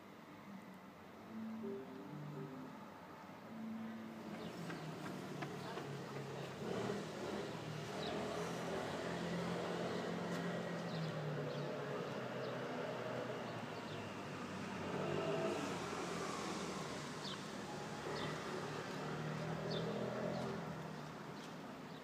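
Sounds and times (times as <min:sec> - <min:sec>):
steady engine hum: 0:03.5 - 0:20.9.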